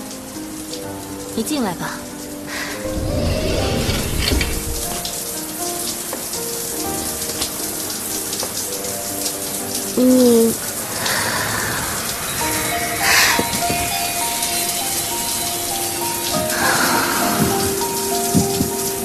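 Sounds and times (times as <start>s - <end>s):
background music of held notes: 0.0s - 19.0s
shower spraying water: 0.0s - 19.0s.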